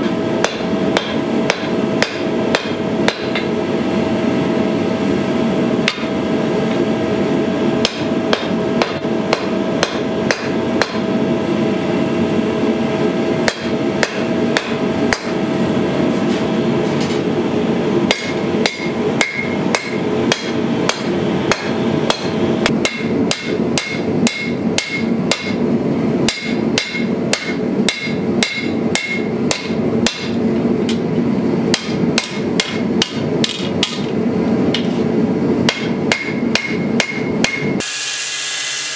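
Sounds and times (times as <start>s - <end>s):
hammer striking anvil: 0.4s - 3.5s, 5.8s - 6.2s, 7.8s - 11.0s, 13.4s - 15.4s, 18.1s - 25.6s, 26.3s - 30.4s, 31.7s - 34.1s, 35.6s - 37.9s.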